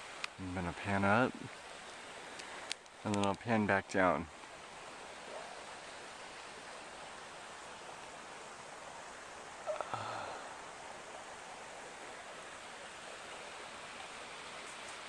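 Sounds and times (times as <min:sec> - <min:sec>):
outdoor background hiss: 0:00.0 - 0:15.0
cluster of clicks: 0:02.3 - 0:03.4.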